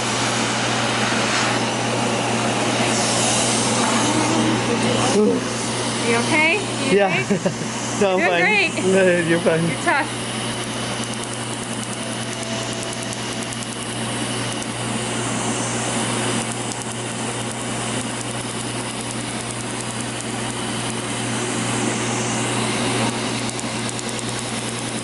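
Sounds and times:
air chiller blowing and humming: 0.0 - 25.0
laser snapping pulses: 11.0 - 14.8, 23.4 - 25.0.

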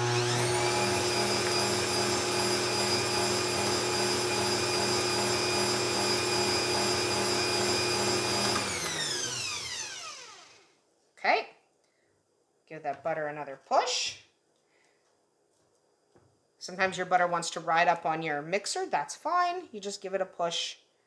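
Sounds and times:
stand mixer motor whining: 0.0 - 10.6.

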